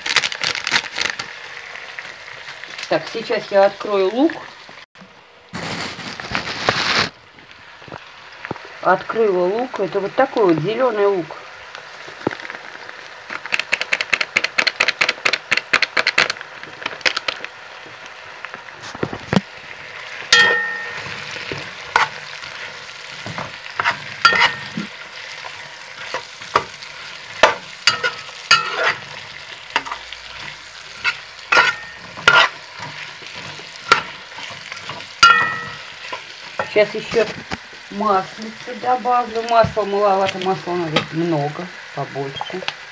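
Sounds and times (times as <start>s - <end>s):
vegetables sizzling in oil: 0.0s - 42.9s
quick clicks: 13.5s - 16.4s
spoon knocking against pot: 20.4s - 21.1s.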